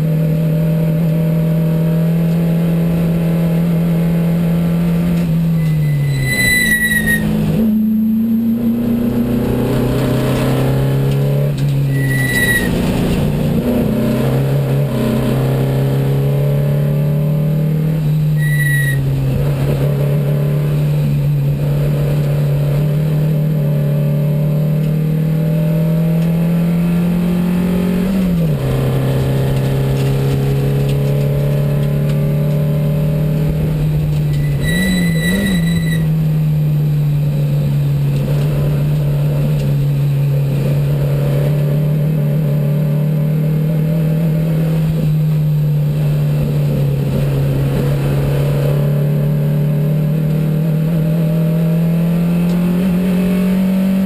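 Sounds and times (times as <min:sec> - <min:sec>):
brief high-pitched tones: 0:05.5 - 0:07.4, 0:11.9 - 0:12.8, 0:18.3 - 0:19.0, 0:34.3 - 0:36.1
race car engine running hard: 0:07.2 - 0:54.0.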